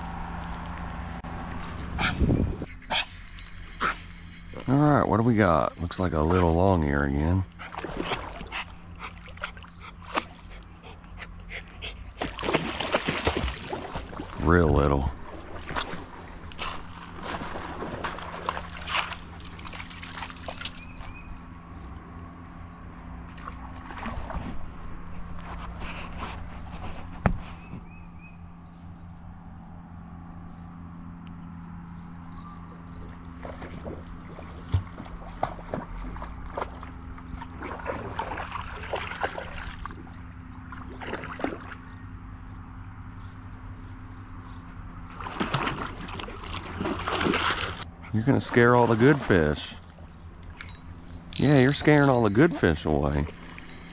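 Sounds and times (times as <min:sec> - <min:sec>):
creek trickling: 0:00.0 - 0:22.0, 0:32.0 - 0:42.9, 0:43.9 - 0:53.9
steady low hum: 0:00.0 - 0:53.9.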